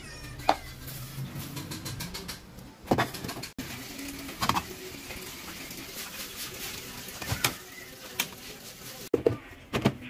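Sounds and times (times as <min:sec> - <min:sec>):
kitchen handling clicks and knocks: 0:01.4 - 0:03.6.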